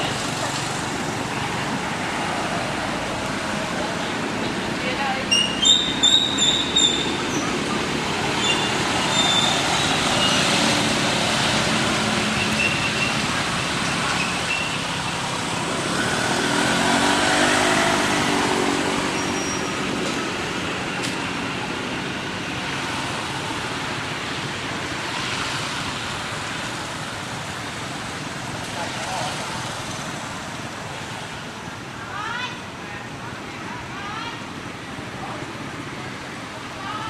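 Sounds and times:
vehicle passing: 0:00.0 - 0:23.7
road traffic noise: 0:00.0 - 0:37.0.

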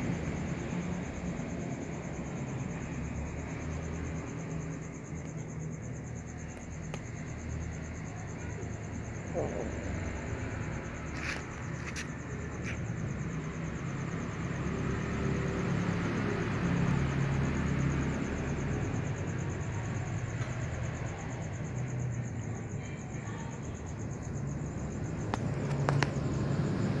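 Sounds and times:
high-pitched insect trill: 0:00.0 - 0:27.0.

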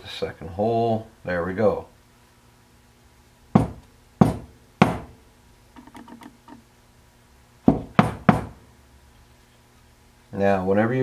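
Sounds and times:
metal part knocking on workbench: 0:05.8 - 0:06.6.

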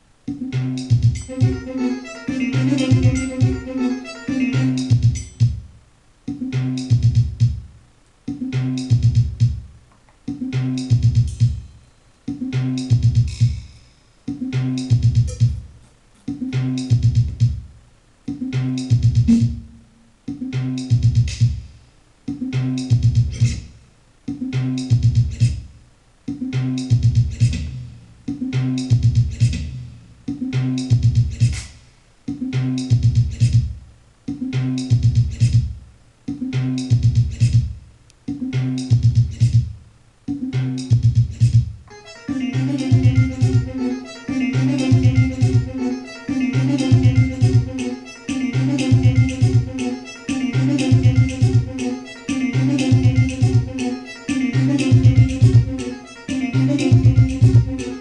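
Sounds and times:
bass-heavy electronic sequenced loop: 0:00.0 - 0:58.0.

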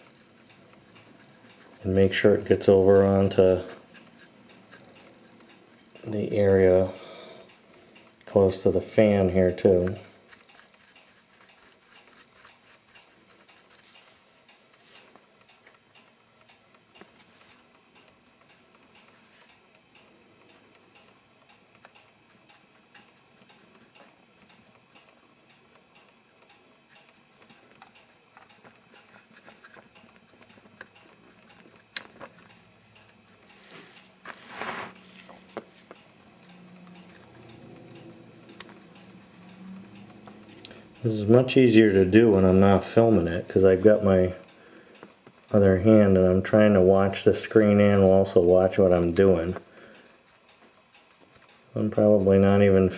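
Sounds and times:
paintbrush clicking on plastic: 0:00.0 - 0:06.7, 0:08.0 - 0:14.8, 0:21.8 - 0:33.6, 0:35.4 - 0:40.8, 0:45.0 - 0:52.9
scratchy brushing: 0:00.0 - 0:06.9, 0:08.2 - 0:15.2, 0:26.8 - 0:44.0, 0:45.4 - 0:52.9.

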